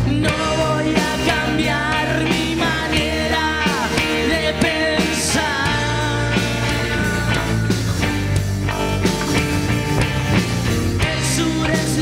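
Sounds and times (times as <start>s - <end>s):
man singing: 0.0s - 8.1s, 11.0s - 12.0s
drums: 0.0s - 12.0s
electric guitars: 0.0s - 12.0s.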